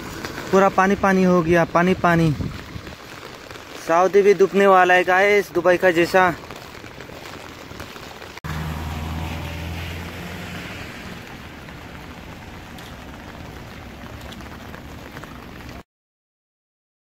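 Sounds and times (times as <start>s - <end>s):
heavy rain falling: 0.0s - 15.8s
vehicle engine hum: 8.4s - 15.7s.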